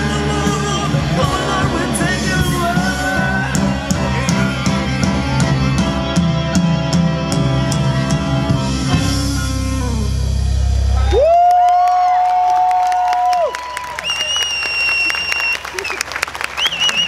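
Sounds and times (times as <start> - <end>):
orchestra playing rock piece: 0.0 - 11.4.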